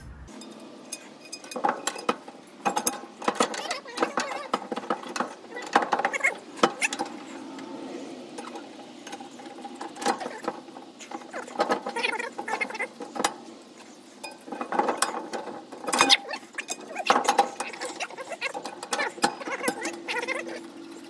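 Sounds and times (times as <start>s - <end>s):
metal clicks and clinks: 0.3s - 7.4s.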